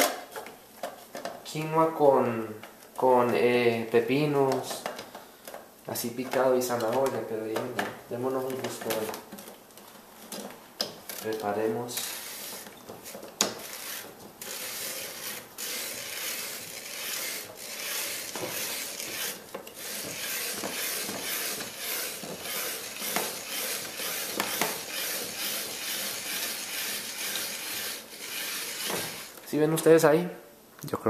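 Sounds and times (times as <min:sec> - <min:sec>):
spiralizer scraping and crunching: 0:11.2 - 0:29.4.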